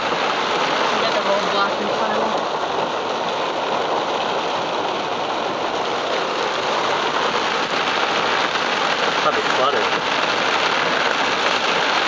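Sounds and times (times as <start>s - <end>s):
heavy rain on car roof: 0.0s - 12.0s.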